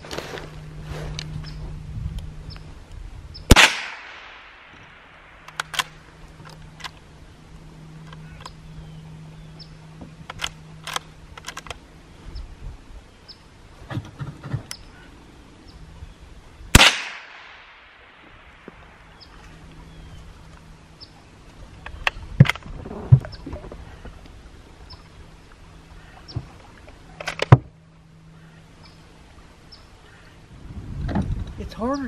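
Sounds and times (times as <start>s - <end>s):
faint low hum: 0.0s - 32.0s
rifle shot with echo: 3.5s - 6.0s, 16.7s - 18.4s
small clicks: 4.7s - 7.0s, 10.2s - 11.8s.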